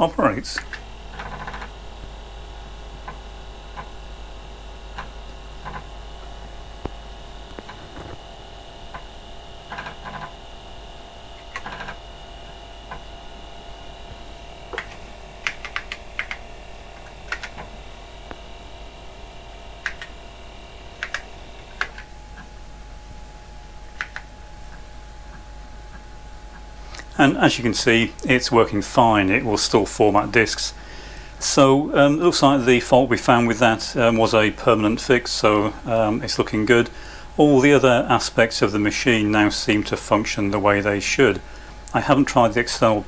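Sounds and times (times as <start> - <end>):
floppy drive whine: 0.0 - 43.0
floppy drive heads clicking: 0.5 - 1.8, 3.0 - 4.0, 4.9 - 5.9, 11.4 - 13.1, 14.7 - 18.5, 19.8 - 20.2, 20.8 - 22.5, 23.9 - 26.7.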